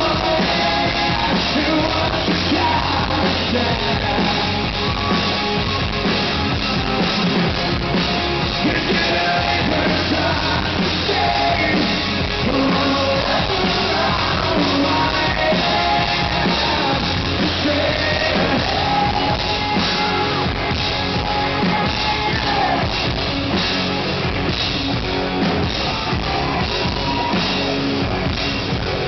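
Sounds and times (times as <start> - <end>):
man singing lead: 0.0 - 5.8, 8.4 - 23.6
live rock band: 0.0 - 29.0.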